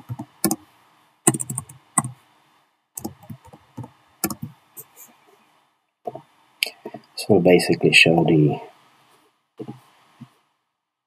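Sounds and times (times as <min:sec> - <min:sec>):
typing on a computer keyboard: 0:00.0 - 0:00.6, 0:01.3 - 0:02.2, 0:03.0 - 0:04.9.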